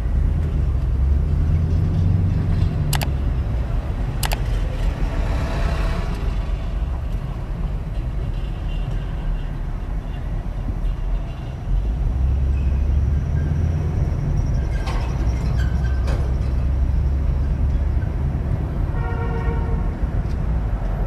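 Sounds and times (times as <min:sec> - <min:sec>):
car engine and road rumble: 0:00.0 - 0:21.0
sharp clicks: 0:02.9 - 0:03.2, 0:04.2 - 0:04.5.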